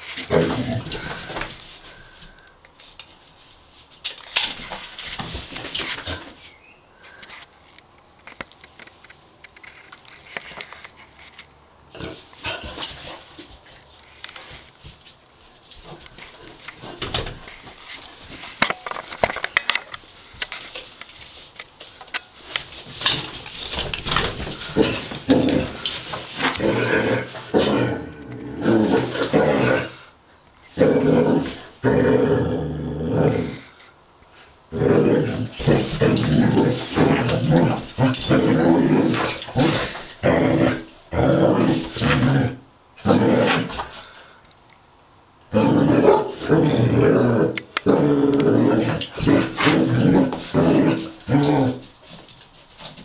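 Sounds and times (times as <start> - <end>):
dog play-growling: 0.0 - 2.4, 23.0 - 30.1, 30.7 - 33.8, 34.7 - 44.4, 45.5 - 52.0.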